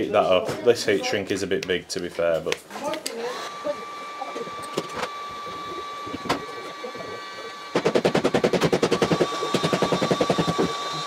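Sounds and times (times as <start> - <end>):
heat gun whine and hiss: 3.2 - 11.0
rapid mechanical rattle: 7.6 - 11.0.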